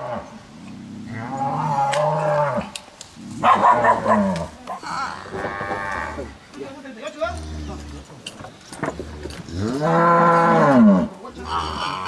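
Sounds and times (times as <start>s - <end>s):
cattle mooing: 0.9s - 2.8s, 3.6s - 6.4s, 9.3s - 12.0s.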